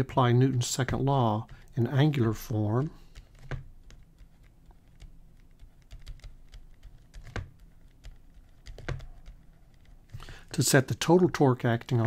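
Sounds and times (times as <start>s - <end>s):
stylus tapping on pen tablet: 3.1s - 9.9s.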